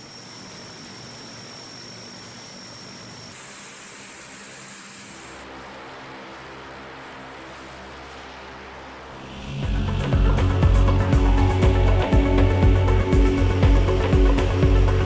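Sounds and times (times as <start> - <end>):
high thin whine: 0.0 - 15.0
turboprop engines running: 0.0 - 15.0
deeper hum: 9.2 - 15.0.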